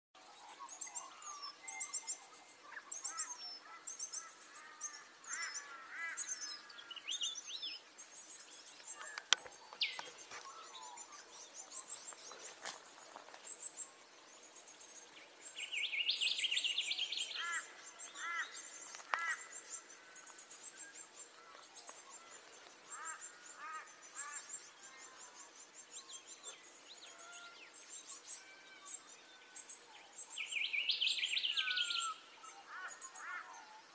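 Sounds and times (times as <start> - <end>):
small birds chirping: 0.2 - 33.9
ringing bird calls: 8.2 - 33.9.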